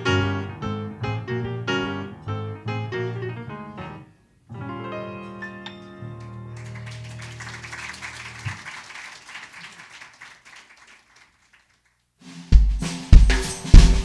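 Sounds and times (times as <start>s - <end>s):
grand piano chord: 0.0s - 7.7s
audience applause: 6.2s - 12.0s
drum kit kick drum beat: 12.5s - 14.0s.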